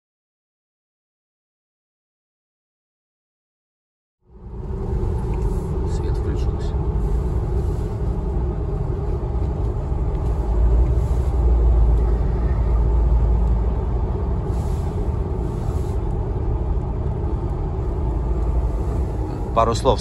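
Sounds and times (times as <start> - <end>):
car road and engine rumble: 4.2 - 20.0.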